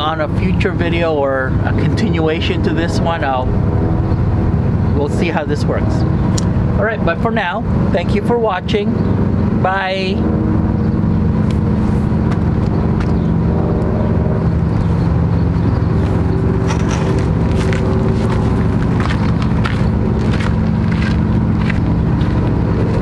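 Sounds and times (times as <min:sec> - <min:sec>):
motor droning: 0:03.2 - 0:05.0, 0:09.0 - 0:23.0
footsteps on gravel: 0:11.5 - 0:13.3, 0:15.8 - 0:23.0.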